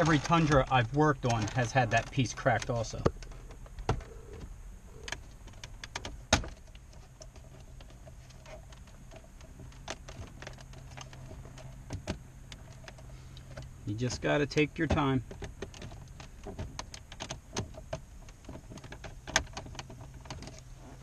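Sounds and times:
plastic clips clicking and creaking: 0.0s - 4.4s
steady low hum: 0.0s - 21.0s.

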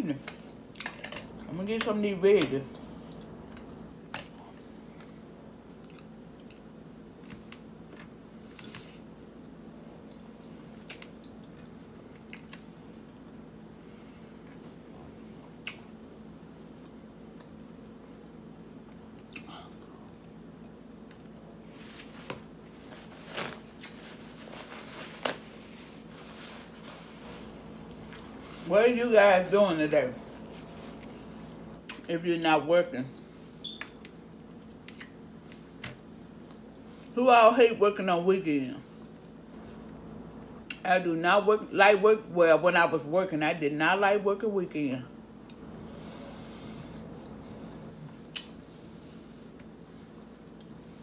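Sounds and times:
low hum: 0.0s - 34.7s, 38.9s - 40.8s, 45.1s - 51.0s
person chewing food: 5.7s - 6.7s
paper towel crinkling: 21.6s - 31.8s.

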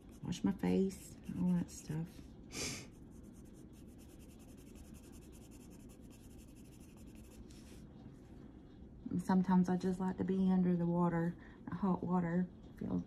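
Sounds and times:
pencil scratching on paper: 0.0s - 2.2s, 2.9s - 7.7s.

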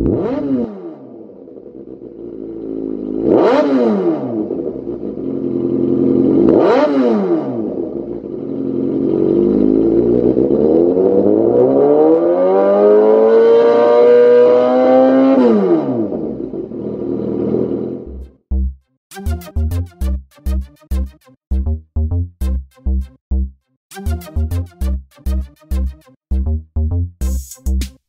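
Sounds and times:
motorcycle engine revving: 0.0s - 18.4s.

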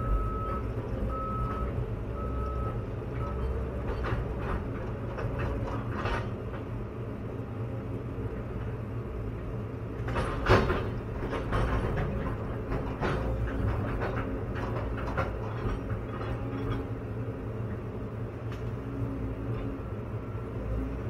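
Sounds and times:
excavator diesel engine running: 0.0s - 21.0s
machine clunks and knocks: 3.2s - 6.7s, 10.0s - 17.0s.

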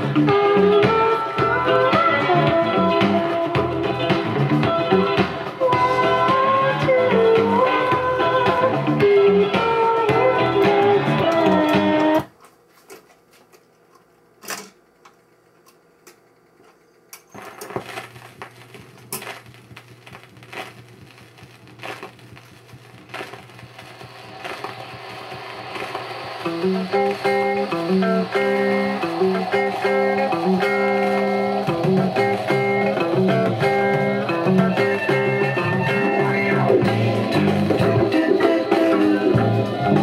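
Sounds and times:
guitar music from a record: 0.0s - 12.3s, 17.4s - 40.0s
record changer dropping record: 4.1s - 12.3s, 17.2s - 40.0s
vinyl crackle and clicking: 10.6s - 39.9s
low hum: 18.0s - 35.7s.

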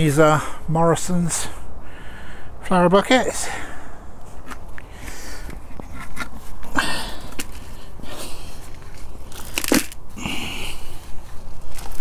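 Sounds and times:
compost rustling and scraping: 4.2s - 12.0s.

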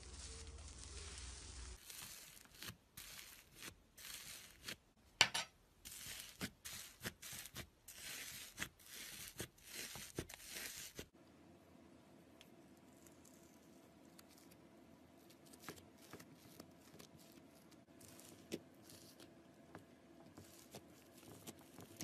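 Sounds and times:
slime crackly rustles: 0.0s - 4.8s.

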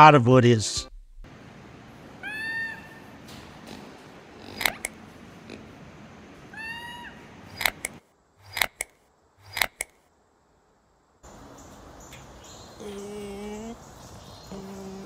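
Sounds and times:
lemur meow-like calls: 2.2s - 5.6s, 6.5s - 7.7s
sharp clicks: 4.4s - 5.0s, 7.5s - 10.0s.

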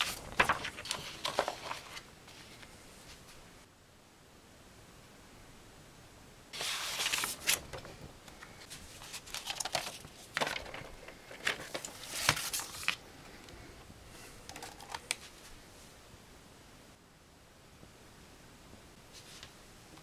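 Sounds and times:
paper rustling and crackling: 0.0s - 3.2s, 6.6s - 13.0s, 14.2s - 15.6s.

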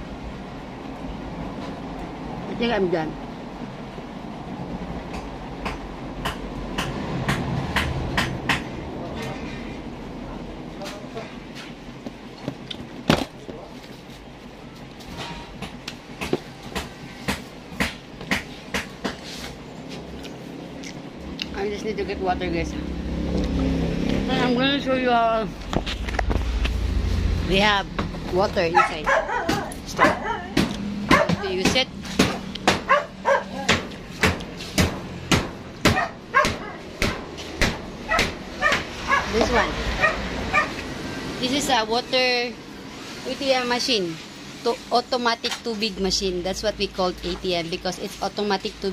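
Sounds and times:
steady background noise: 0.0s - 48.9s
sharp knocks and clicks: 5.1s - 8.8s
dog barking: 28.7s - 31.6s, 32.8s - 33.7s, 35.9s - 36.8s, 38.1s - 39.4s, 40.0s - 40.8s.

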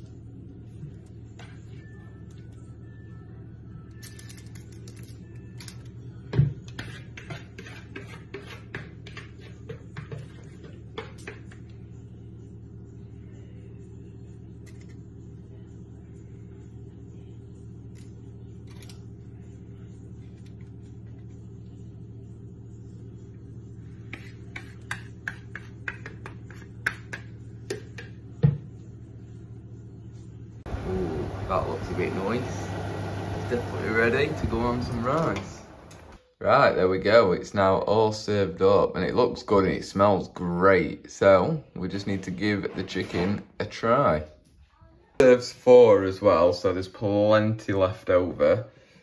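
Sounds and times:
low hum: 27.4s - 36.3s.

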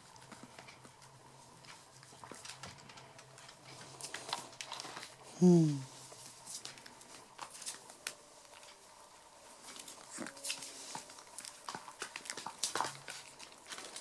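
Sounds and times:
claws clicking on tile floor: 9.7s - 14.0s.

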